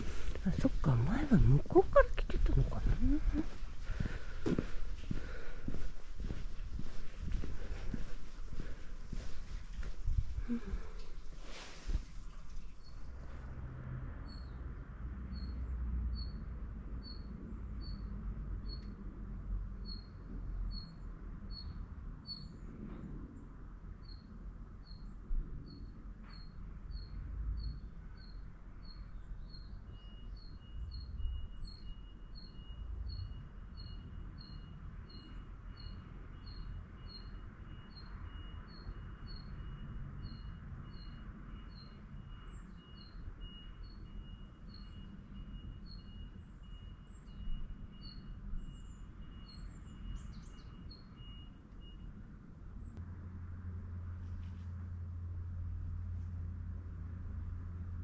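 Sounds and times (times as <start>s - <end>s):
low background rumble: 0.0s - 13.2s
small bird chirping: 24.0s - 52.0s.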